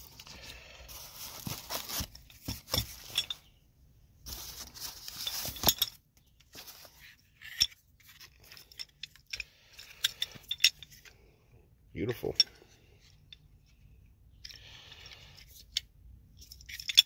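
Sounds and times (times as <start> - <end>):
plastic wrap crinkling: 0.9 - 2.5.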